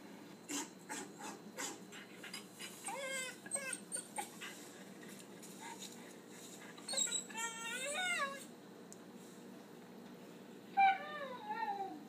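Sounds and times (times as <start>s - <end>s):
dog whining: 2.8s - 4.5s, 6.8s - 8.5s, 10.8s - 12.0s
recorded dog whimpers and yips: 2.8s - 4.5s, 6.8s - 8.5s, 10.8s - 12.0s.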